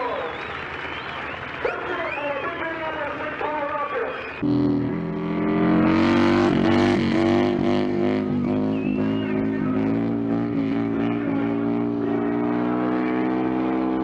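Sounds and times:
motorcycle engine running: 4.4 - 14.0.

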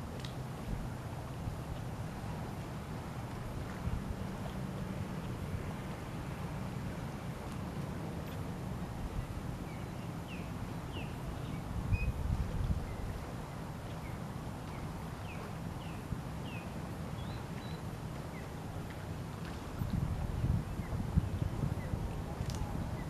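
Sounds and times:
wind on microphone: 0.0 - 14.3, 19.1 - 23.0.

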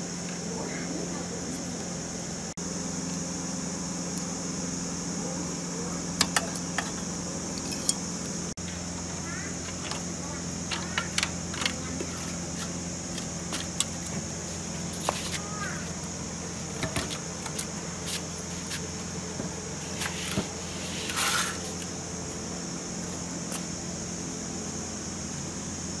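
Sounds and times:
background hum: 0.0 - 26.0
metal scrape: 19.9 - 21.7.

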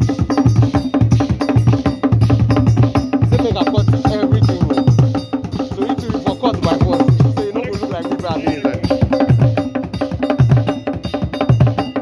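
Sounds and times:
drum ensemble: 0.0 - 12.0.

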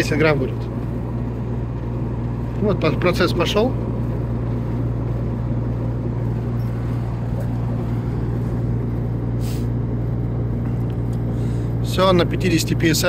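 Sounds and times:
air conditioning unit humming: 0.0 - 13.0
brief hiss: 9.4 - 9.8.

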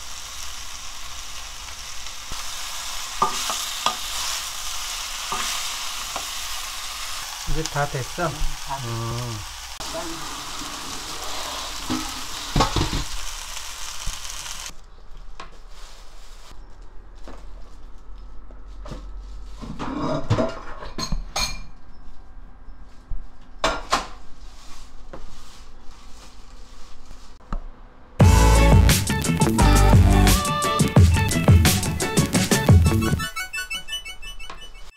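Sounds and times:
food sizzling in a frying pan: 0.0 - 14.8.

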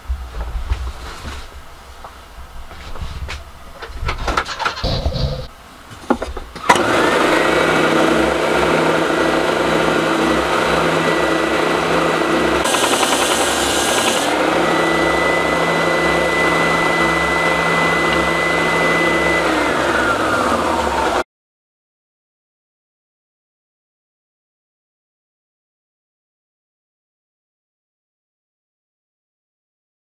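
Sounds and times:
sander motor hum and whine: 6.6 - 21.2
wood rasping on sanding belt: 12.6 - 14.4.

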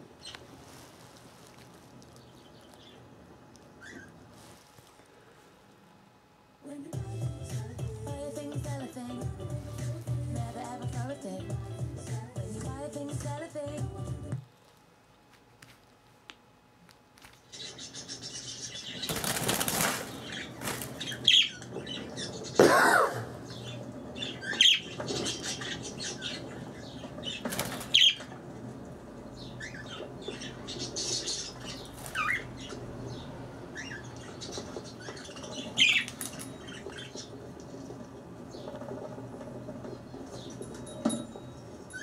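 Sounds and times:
wings flapping and rustling: 0.2 - 5.1, 17.1 - 22.6, 23.5 - 29.0, 29.6 - 32.8, 33.8 - 40.6.

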